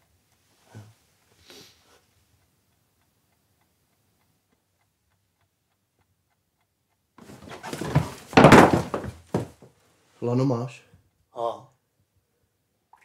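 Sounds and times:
clock ticking: 0.0s - 0.5s, 2.0s - 7.2s
soft hiss: 0.0s - 4.4s.

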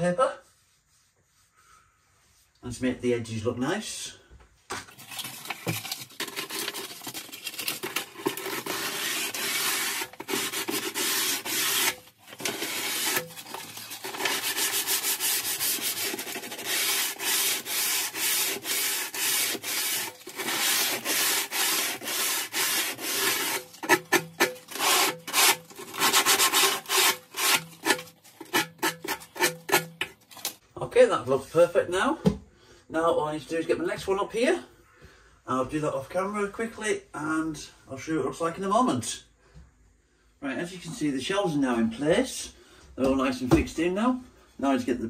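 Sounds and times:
sandpaper scratching on wood: 0.4s - 1.5s, 8.4s - 29.9s.

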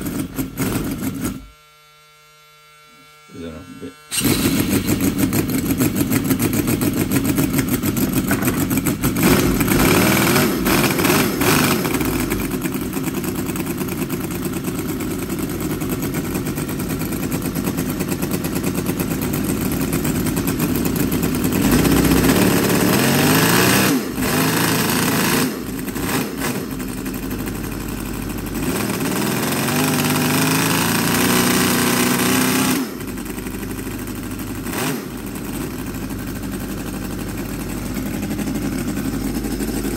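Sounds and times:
model engine revving: 3.2s - 14.5s, 18.3s - 35.8s.

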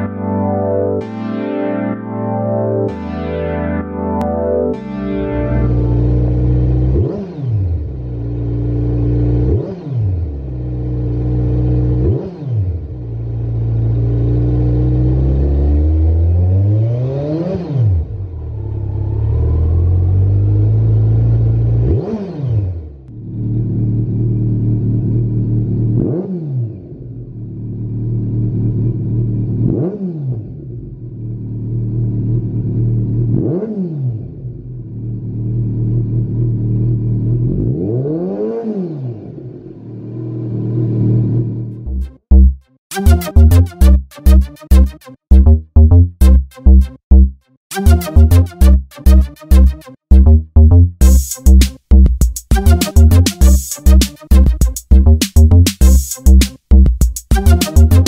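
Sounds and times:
motorcycle engine idling and revving: 5.7s - 42.6s.

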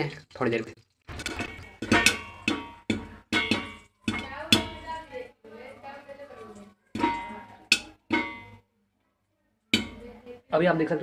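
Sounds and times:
popcorn popping in metal pan: 0.0s - 5.9s, 6.8s - 8.6s, 9.7s - 10.3s.

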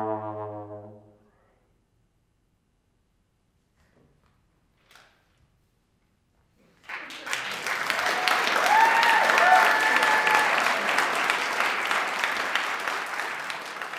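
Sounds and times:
audience applauding: 6.8s - 13.9s
crowd cheering: 6.9s - 13.9s.

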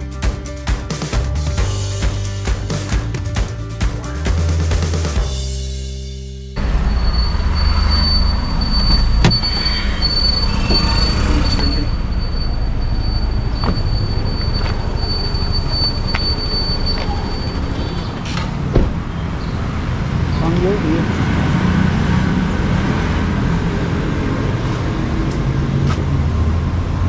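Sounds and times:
high-pitched whine: 6.6s - 18.2s
road noise inside moving car: 6.6s - 27.0s.

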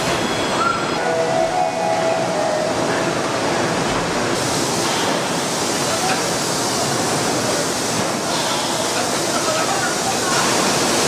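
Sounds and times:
factory machinery rushing: 0.0s - 11.0s.

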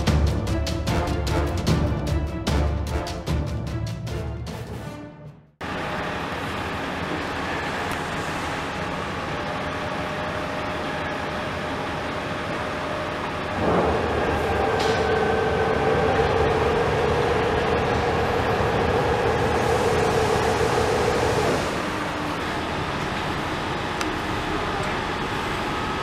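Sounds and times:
steady whine: 5.6s - 26.0s
truck engine running: 5.6s - 26.0s.

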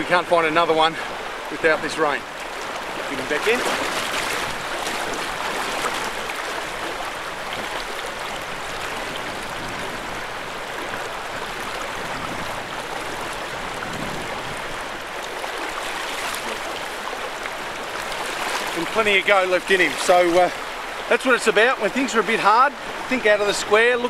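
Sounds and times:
river water rushing: 0.0s - 24.0s.

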